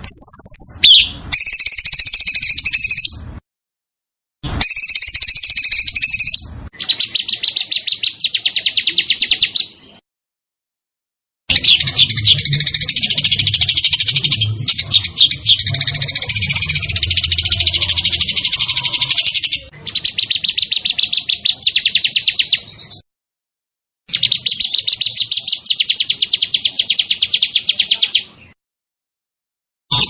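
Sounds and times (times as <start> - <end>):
songbird trilling: 0.0 - 3.2, 4.6 - 9.8, 11.5 - 23.0, 24.1 - 28.3.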